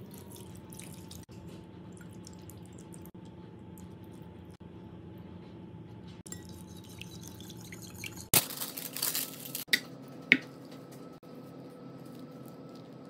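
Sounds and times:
parchment paper rustling: 8.4s - 9.7s.

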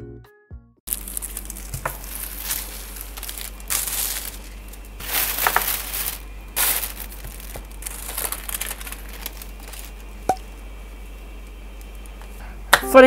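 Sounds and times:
plastic bag crinkling: 0.9s - 10.3s.

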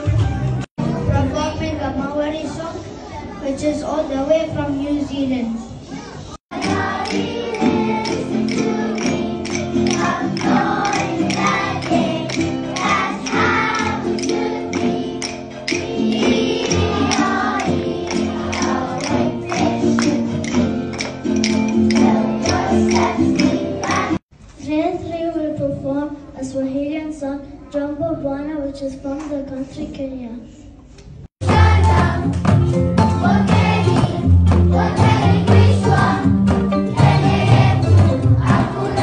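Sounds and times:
children singing: 6.5s - 24.2s, 31.4s - 32.3s, 33.1s - 39.0s
rhythm sticks clicking: 6.5s - 24.2s.

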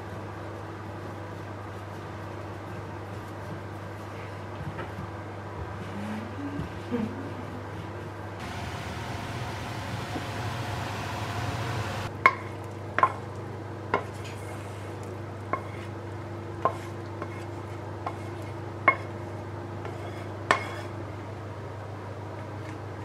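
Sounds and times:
low steady hum: 8.4s - 12.1s
vegetables sizzling in a frying pan: 8.4s - 12.1s.

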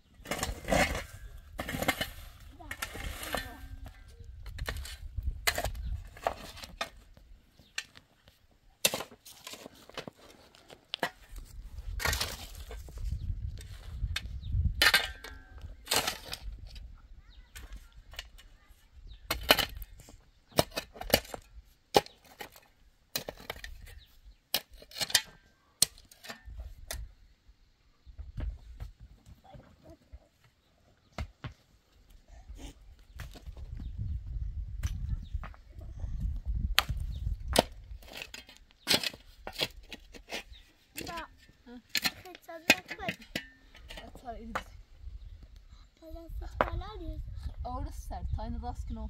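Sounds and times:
shovel digging stony soil: 0.2s - 7.0s, 8.8s - 16.7s, 19.3s - 27.0s, 36.7s - 44.6s.

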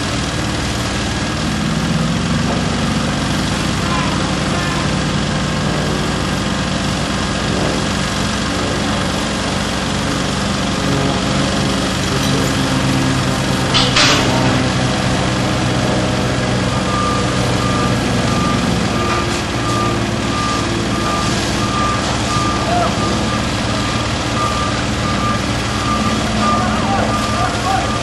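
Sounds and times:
truck engine running: 0.0s - 28.0s
reversing alarm beeping: 11.4s - 28.0s.

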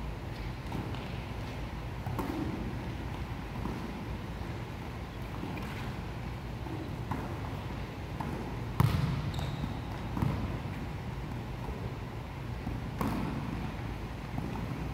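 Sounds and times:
volleyball smacks: 8.2s - 9.3s, 13.0s - 13.5s.

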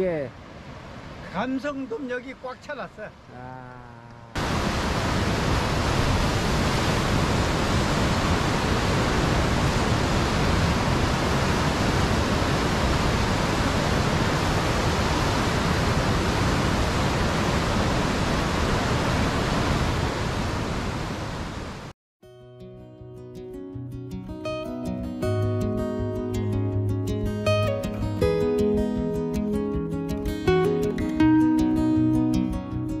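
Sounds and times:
surf breaking over rocks: 4.4s - 21.0s.

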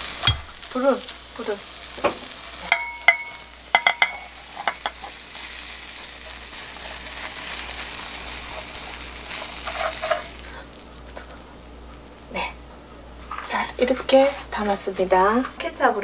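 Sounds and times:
egg sizzling in frying pan: 0.0s - 12.4s.

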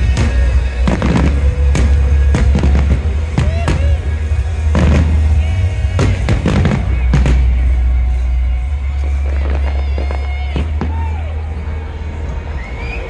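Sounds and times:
loud music with deep bass: 0.0s - 12.9s.

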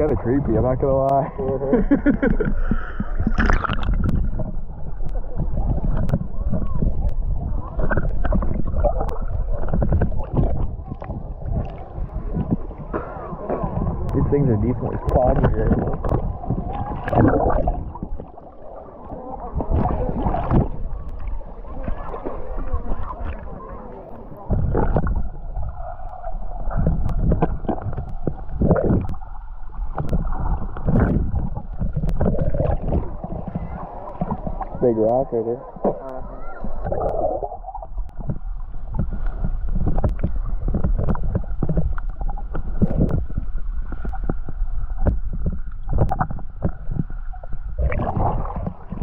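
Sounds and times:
low underwater rumble: 0.0s - 49.0s
underwater sloshing and gurgling: 0.0s - 49.0s
faint sharp clicks: 14.9s - 16.3s, 26.8s - 29.2s, 38.9s - 43.2s.

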